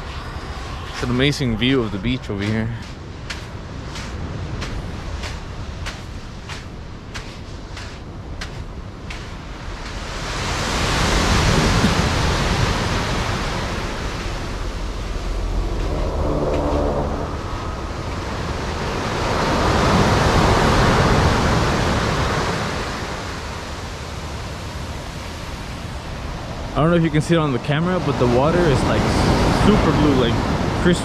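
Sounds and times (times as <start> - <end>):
low hum: 0.0 - 10.6, 11.4 - 19.4
ocean surf breaking on beach: 0.0 - 31.0.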